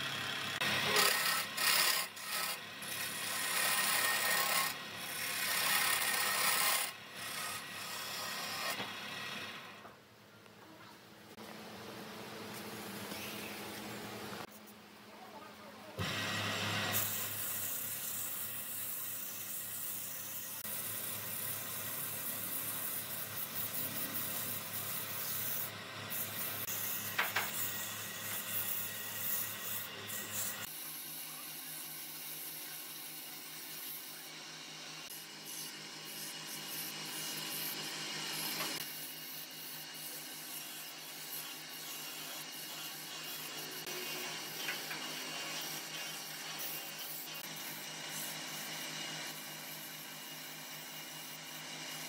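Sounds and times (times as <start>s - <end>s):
sandpaper rubbing spinning wood: 0.0s - 9.7s, 16.0s - 52.0s
lathe motor hum: 0.0s - 9.9s, 16.0s - 17.4s.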